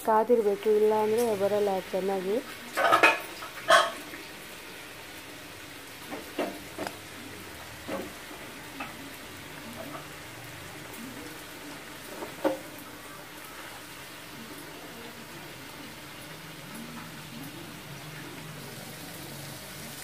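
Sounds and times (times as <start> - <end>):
oil sizzling: 0.0 - 20.0.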